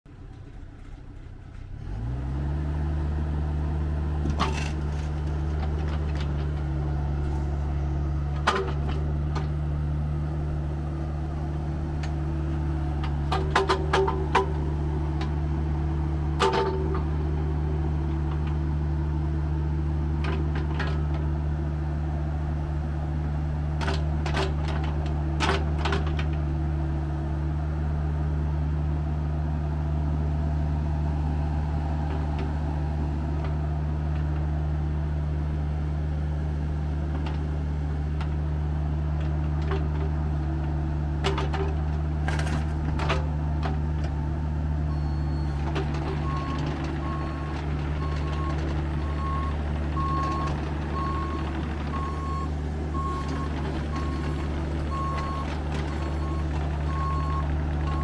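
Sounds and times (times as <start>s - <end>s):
diesel excavator engine running: 0.1s - 58.0s.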